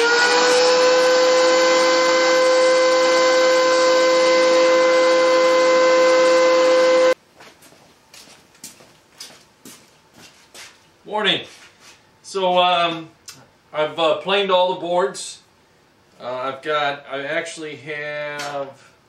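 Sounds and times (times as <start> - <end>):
thickness planer high whine: 0.0 - 7.2.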